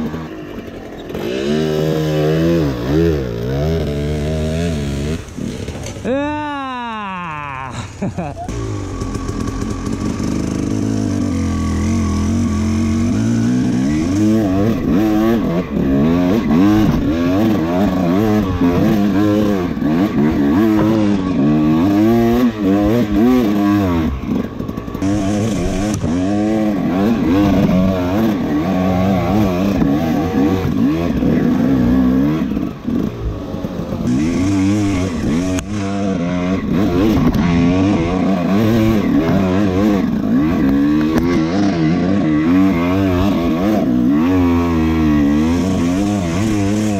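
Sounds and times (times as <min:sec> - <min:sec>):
dirt bike engine revving: 0:00.0 - 0:46.9.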